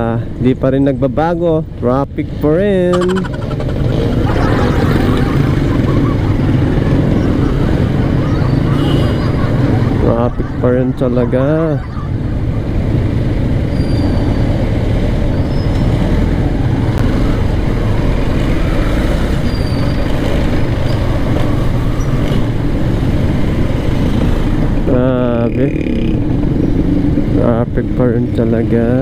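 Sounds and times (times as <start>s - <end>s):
rumble of city traffic: 0.0s - 29.0s
motorcycle engine at low speed: 2.6s - 10.6s.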